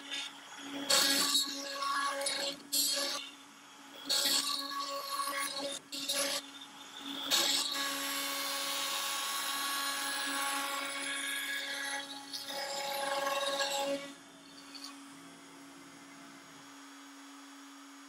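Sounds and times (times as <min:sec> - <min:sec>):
router spindle whining: 0:04.1 - 0:15.5.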